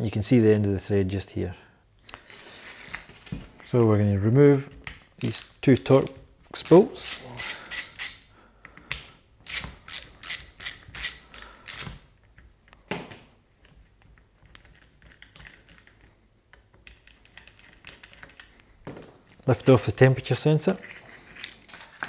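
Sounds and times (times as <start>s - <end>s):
ratchet clicking: 6.7s - 8.3s, 9.4s - 12.0s.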